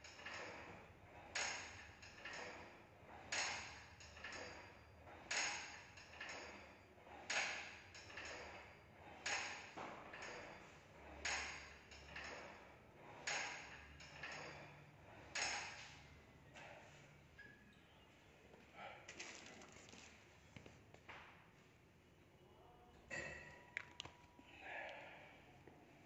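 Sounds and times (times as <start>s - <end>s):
metallic clanks with ring: 23.1s - 23.8s.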